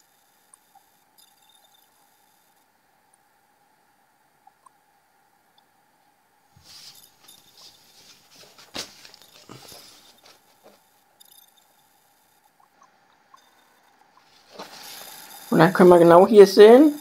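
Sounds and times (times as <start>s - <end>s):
cardboard rustling and scraping: 6.6s - 10.8s.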